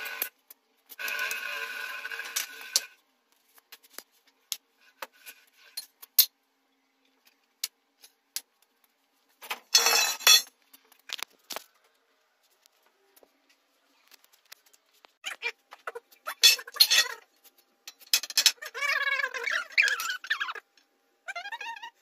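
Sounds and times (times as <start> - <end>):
metal parts clinking on stone: 9.7 - 10.5.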